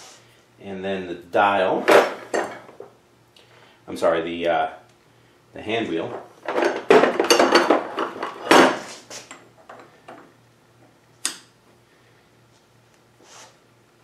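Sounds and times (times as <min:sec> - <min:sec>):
metal parts clinking and rattling: 0:06.2 - 0:08.9.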